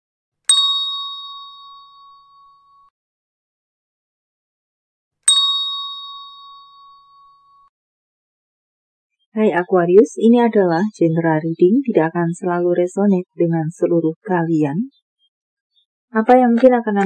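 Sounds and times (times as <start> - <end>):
bell-like chime: 0.5 - 2.9, 5.3 - 7.7.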